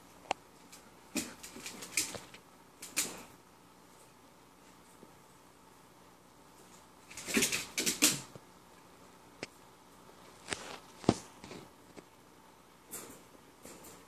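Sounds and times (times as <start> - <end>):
wire cage rattling and clicking: 12.8 - 14.0.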